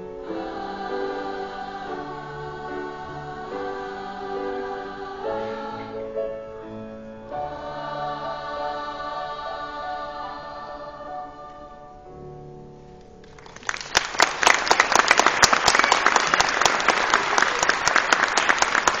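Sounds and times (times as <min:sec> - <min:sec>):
choir singing a chord: 0:00.0 - 0:12.8
audience applause: 0:13.3 - 0:19.0.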